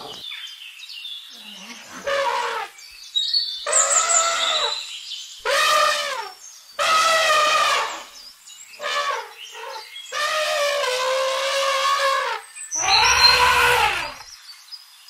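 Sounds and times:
elephant trumpeting: 0:01.9 - 0:02.8, 0:05.4 - 0:08.2, 0:08.8 - 0:14.3.

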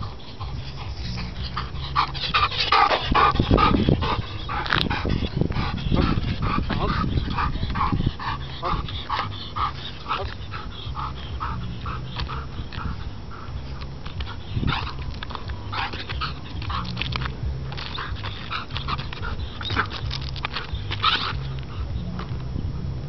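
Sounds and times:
dog whining and yipping: 0:17.7 - 0:21.5.

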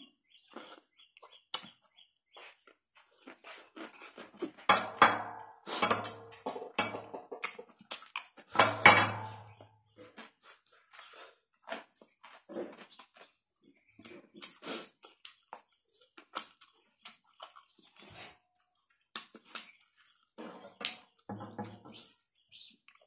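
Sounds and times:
person chewing crisp cucumber: 0:00.4 - 0:04.7, 0:07.4 - 0:08.5, 0:09.4 - 0:21.3.

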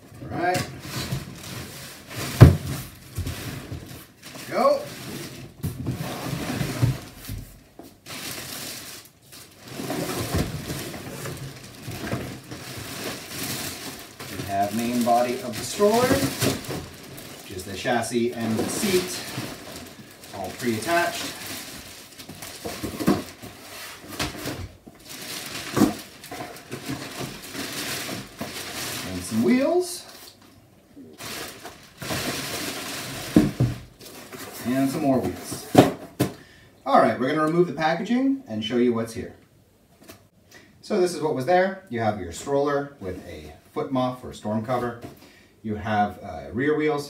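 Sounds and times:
cardboard scraping: 0:00.3 - 0:29.7
plastic wrapping crinkling: 0:00.3 - 0:35.8.

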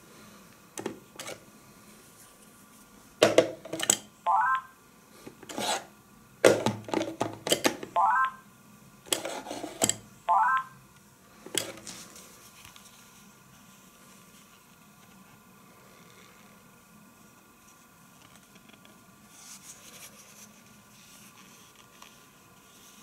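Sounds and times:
rising phone beeps: 0:04.3 - 0:04.8, 0:08.0 - 0:08.4, 0:10.3 - 0:10.8.

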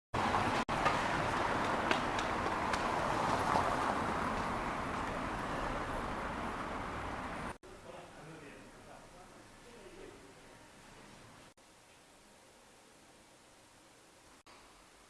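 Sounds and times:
street traffic noise: 0:00.2 - 0:07.6.

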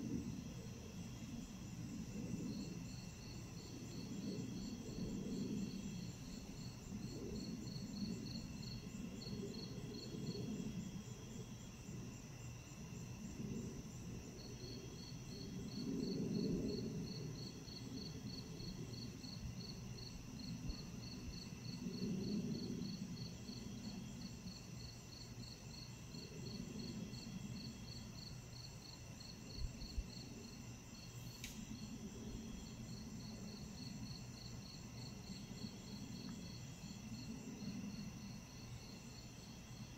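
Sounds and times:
crickets chirping: 0:00.0 - 0:39.9
insect trills: 0:00.0 - 0:39.9
faint click: 0:31.4 - 0:31.7.

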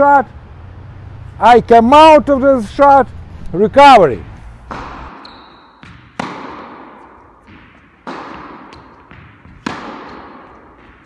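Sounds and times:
tennis ball bouncing: 0:04.6 - 0:11.0
tennis racket hitting ball: 0:04.6 - 0:11.0.

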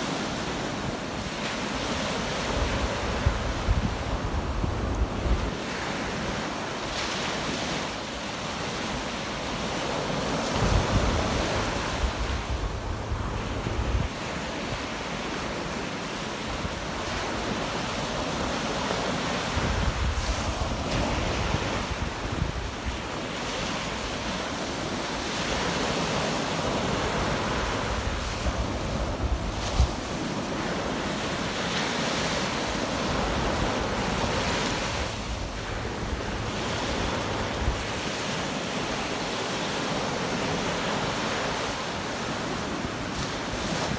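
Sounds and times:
small waves washing up shore: 0:00.0 - 0:43.9
wind rumbling on microphone: 0:02.4 - 0:07.6, 0:10.3 - 0:15.5, 0:18.4 - 0:24.4, 0:26.6 - 0:31.7.

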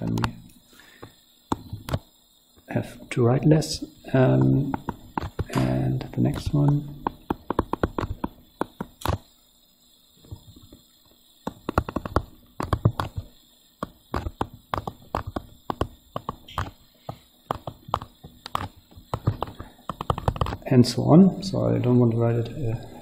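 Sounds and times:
stylus tapping on touchscreen: 0:01.0 - 0:02.1, 0:04.2 - 0:09.2, 0:10.2 - 0:20.6.

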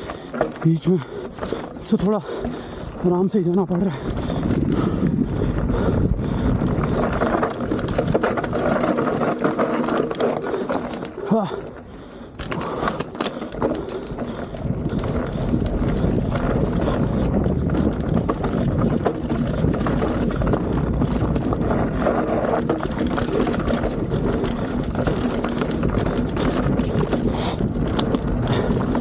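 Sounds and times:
bike chain and frame clatter: 0:00.0 - 0:29.0
wind rumble on microphone: 0:01.4 - 0:11.6, 0:12.4 - 0:29.0
tyres crunching over stones: 0:12.4 - 0:29.0.

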